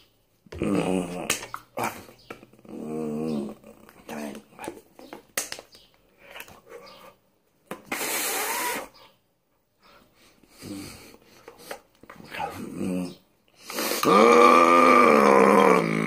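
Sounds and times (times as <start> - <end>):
man grunting: 0.5 - 3.8, 14.0 - 16.0
man growling: 0.5 - 4.3, 12.3 - 13.2, 14.0 - 16.0
man breathy hiss: 13.6 - 14.1.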